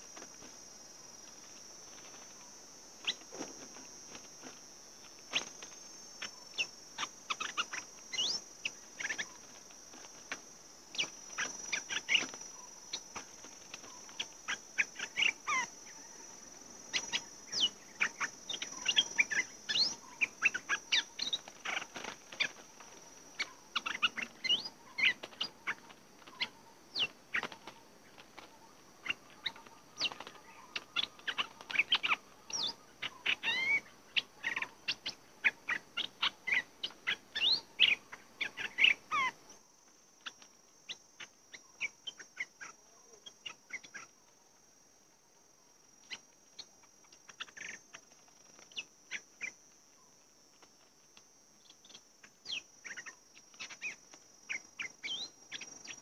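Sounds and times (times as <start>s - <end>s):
bulbuls chirping: 0.0s - 39.6s, 51.6s - 56.0s
high insect whine: 0.0s - 56.0s.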